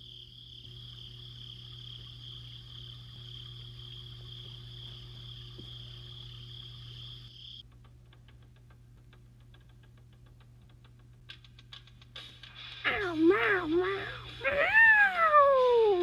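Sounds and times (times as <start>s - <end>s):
crickets chirring: 0.0s - 7.6s
low steady hum: 0.0s - 12.1s.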